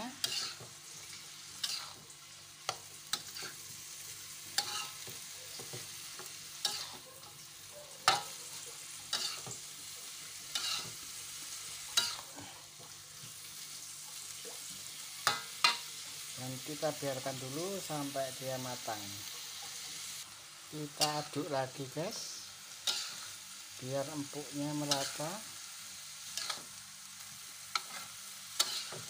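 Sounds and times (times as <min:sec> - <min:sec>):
food sizzling: 0:00.0 - 0:29.0
metal spatula scraping a wok: 0:00.1 - 0:02.1, 0:03.1 - 0:03.7, 0:04.6 - 0:07.0, 0:09.1 - 0:09.6, 0:10.5 - 0:11.0, 0:11.9 - 0:12.4, 0:22.8 - 0:23.4, 0:26.2 - 0:26.8, 0:27.4 - 0:29.0.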